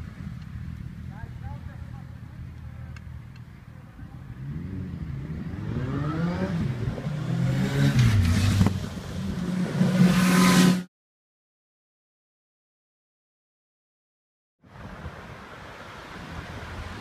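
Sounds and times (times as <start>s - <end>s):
cars accelerating past: 4.3s - 10.9s.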